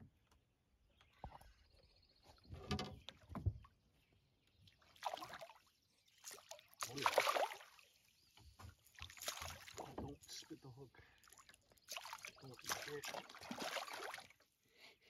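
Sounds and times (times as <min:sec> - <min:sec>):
fish splashing in water: 0:06.2 - 0:07.9, 0:08.9 - 0:09.9, 0:11.3 - 0:14.3.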